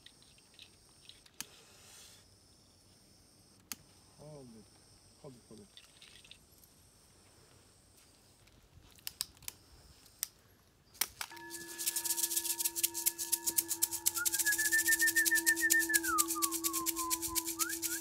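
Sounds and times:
hand rattle shaking: 0:11.3 - 0:18.0
singing bowl ringing: 0:11.3 - 0:18.0
warbling whistle: 0:11.3 - 0:18.0.

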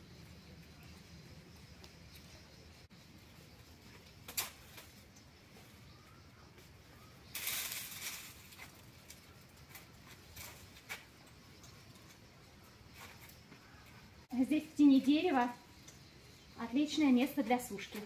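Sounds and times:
herbs rustling: 0:07.2 - 0:11.0.

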